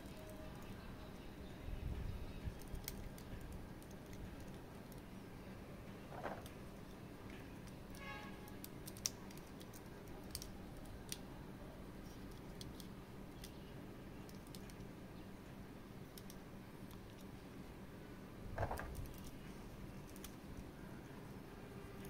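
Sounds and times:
faint room hum: 0:00.0 - 0:22.0
action figure parts clicking: 0:08.6 - 0:11.2.

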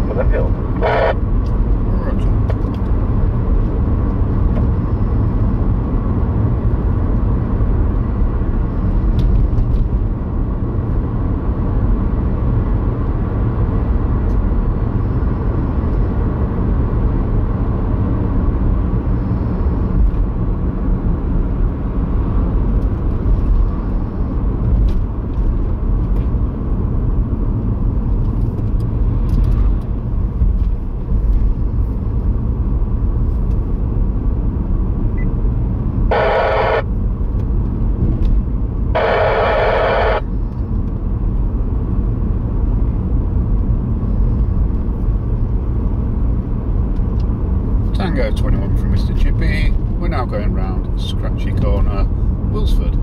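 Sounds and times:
car road and engine noise: 0:00.0 - 0:53.0.

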